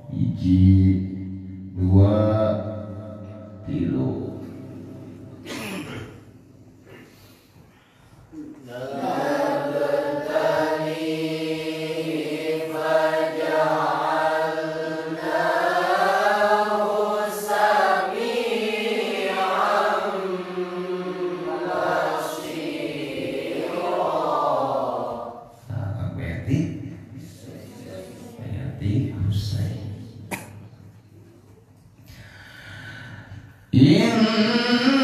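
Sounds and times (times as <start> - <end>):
man reciting melodically: 0.0 - 5.0, 25.7 - 27.2, 33.6 - 35.0.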